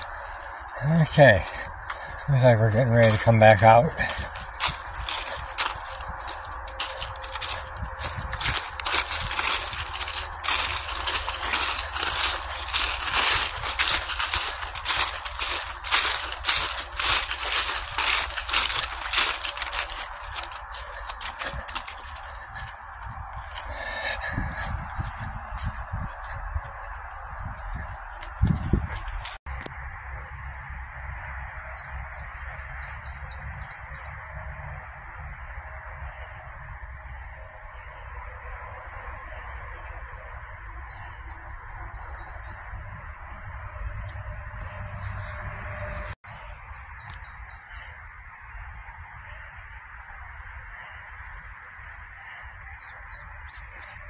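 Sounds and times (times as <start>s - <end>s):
wind rumbling on microphone: 3.9s - 29.4s, 40.8s - 46.2s.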